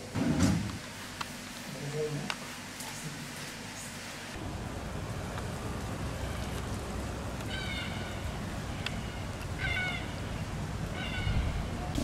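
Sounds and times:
wind rumbling on microphone: 4.4 - 12.0
animal calls: 6.1 - 12.0.

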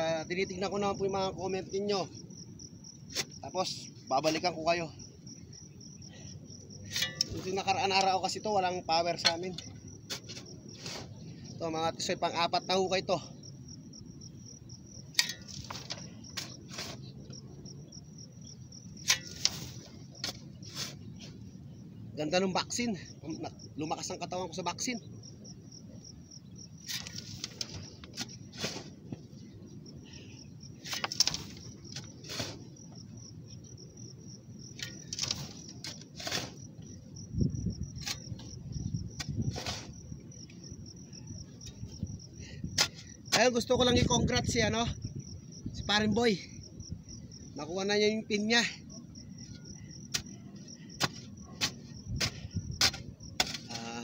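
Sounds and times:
cricket chirping: 0.0 - 54.0
soil being dug: 2.7 - 13.7, 14.6 - 25.1, 26.5 - 54.0
digging knocks and scrapes: 3.0 - 4.8, 6.8 - 11.5, 14.9 - 17.5, 18.4 - 21.6, 26.7 - 29.6, 30.7 - 33.8, 34.6 - 44.8, 48.6 - 54.0.

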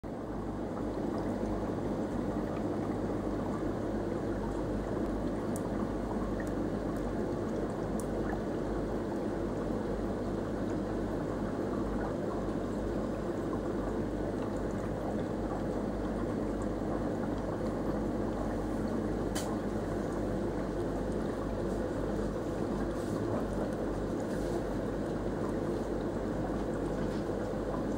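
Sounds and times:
aquarium water bubbling: 0.0 - 27.9.

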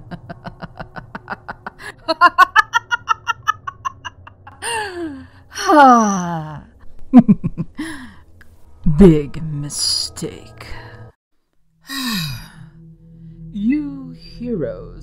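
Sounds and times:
woman cackling laugh: 0.0 - 4.6.

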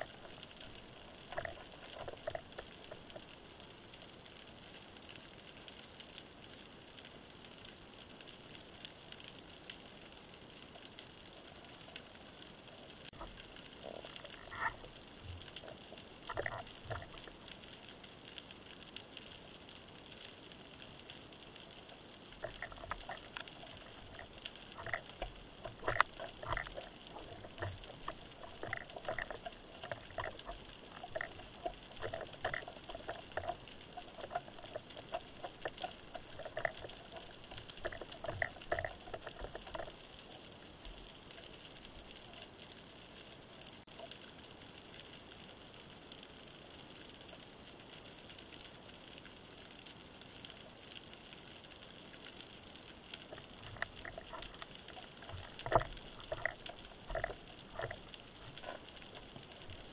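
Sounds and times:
pebbles clacking underwater: 0.0 - 3.4, 13.0 - 17.8, 21.6 - 42.5, 52.2 - 59.9.

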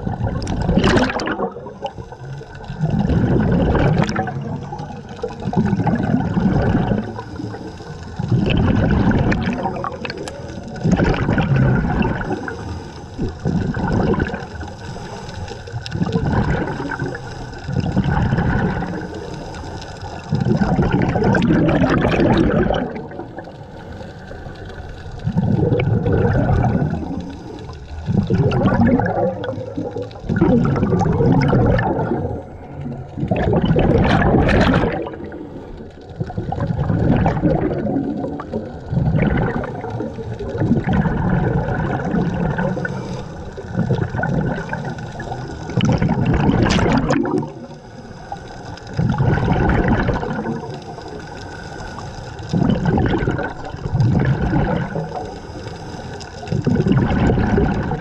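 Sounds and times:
exhaled bubbles underwater: 0.0 - 58.0.

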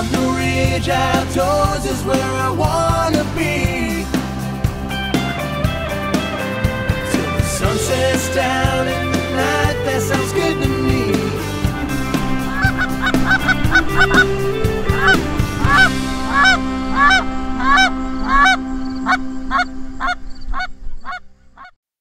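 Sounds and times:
background music: 0.0 - 20.3
geese honking: 7.0 - 21.7.

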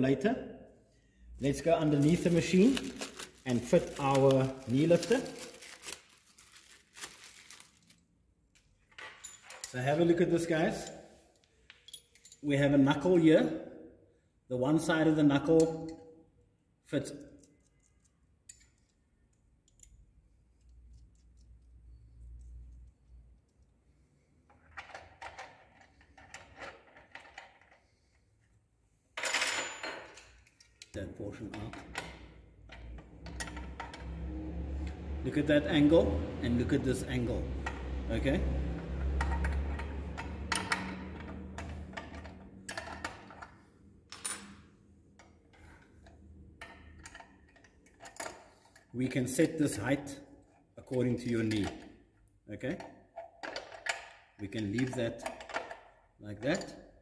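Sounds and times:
metal clicks and clinks: 8.9 - 9.8, 10.8 - 12.5, 17.2 - 21.5.

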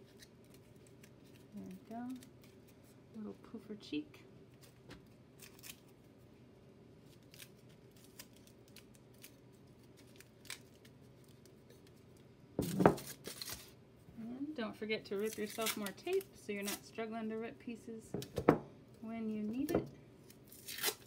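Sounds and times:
aluminium foil crinkling: 0.0 - 3.3, 4.5 - 6.3, 7.0 - 13.8, 15.0 - 17.1, 19.3 - 21.0.

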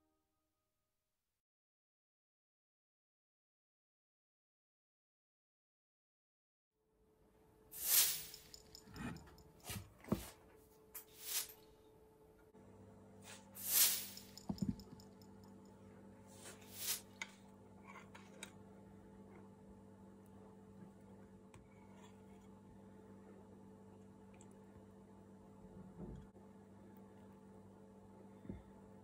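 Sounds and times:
steady low hum: 8.2 - 29.0.

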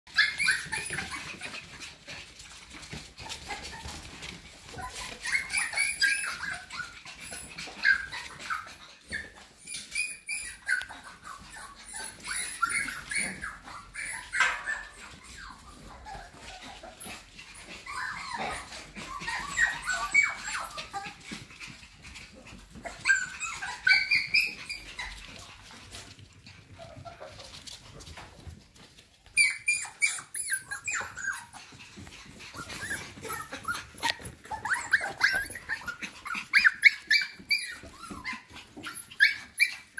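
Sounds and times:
puppies yipping and whining: 0.1 - 39.9.

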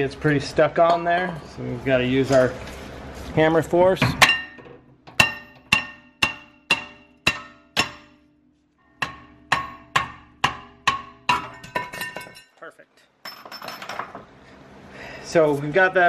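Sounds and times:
hammer striking metal rotor: 4.2 - 12.5.

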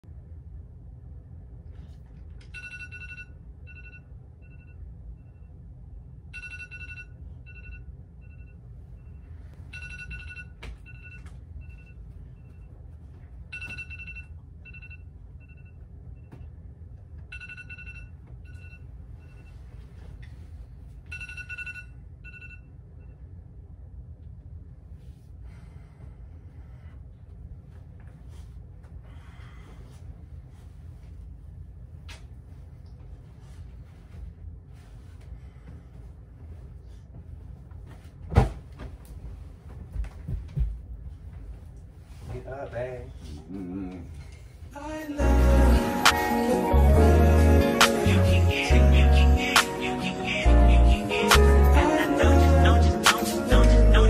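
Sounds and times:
steady low hum: 0.0 - 54.0
phone alarm chiming and beeping: 2.6 - 5.5, 6.4 - 12.0, 17.3 - 19.5, 21.1 - 22.7.

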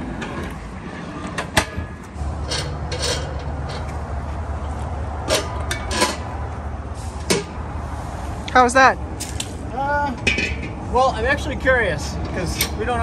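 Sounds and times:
metal cylinder knocking and clanking: 10.2 - 10.8.

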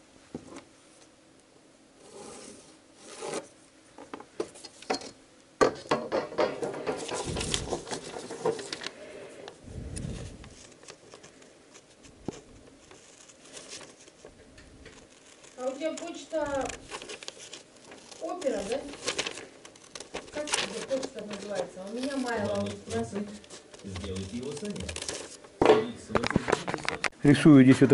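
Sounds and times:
paper rustling: 6.6 - 9.1, 9.9 - 27.1
scissors snipping paper: 10.5 - 25.4.

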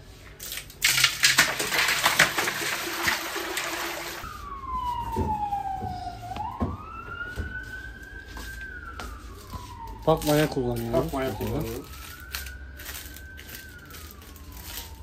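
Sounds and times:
ice clattering: 0.4 - 4.2
ice water pouring and splashing: 0.4 - 4.2
siren wailing: 2.8 - 15.0.

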